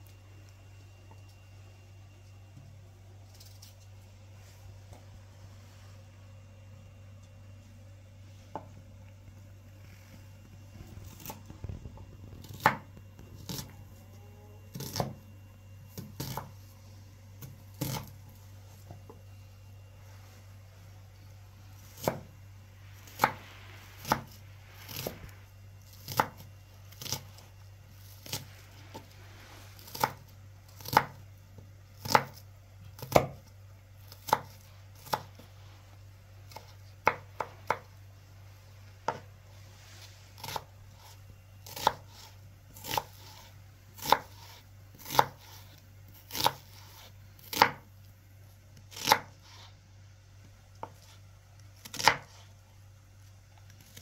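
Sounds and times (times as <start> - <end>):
knife chopping on cutting board: 12.4 - 13.7, 14.7 - 15.2, 16.0 - 16.5, 17.4 - 18.1, 22.0 - 22.3, 23.1 - 23.4, 24.0 - 25.1, 25.9 - 27.3, 29.8 - 31.2, 32.0 - 32.4, 33.0 - 33.4, 34.1 - 35.4, 36.5 - 37.9, 40.4 - 47.8, 48.9 - 49.3, 51.8 - 52.4.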